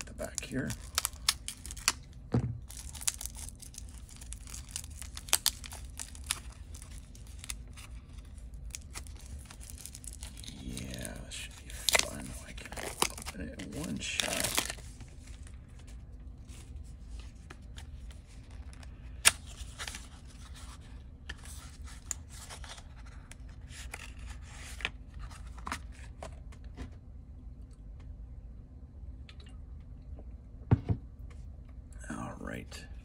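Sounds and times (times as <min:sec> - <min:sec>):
card wrapper rustling and tearing: 0:00.0 - 0:26.4.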